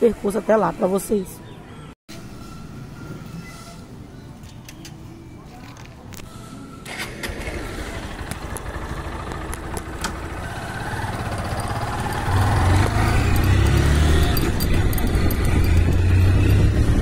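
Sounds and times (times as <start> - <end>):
motorcycle engine accelerating: 7.3 - 17.0.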